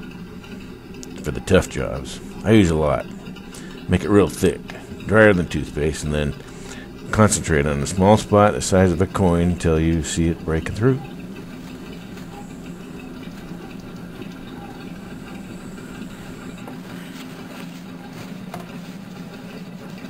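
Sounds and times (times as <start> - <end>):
steady low hum: 0.0 - 20.0
cloth scrubbing metal pipe: 1.0 - 19.6.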